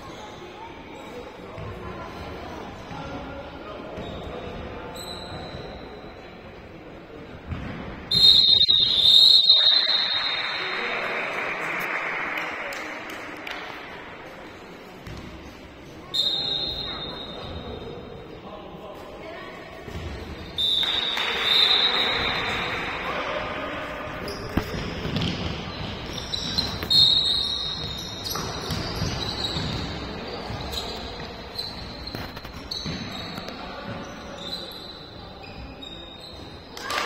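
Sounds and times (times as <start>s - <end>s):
shoe squeaks on court: 3.9s - 6.2s, 15.0s - 18.0s, 24.1s - 36.8s.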